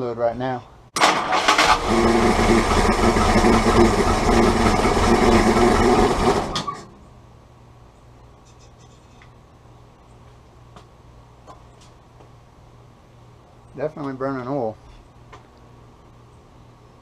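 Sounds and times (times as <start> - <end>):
engine running: 1.0 - 7.0.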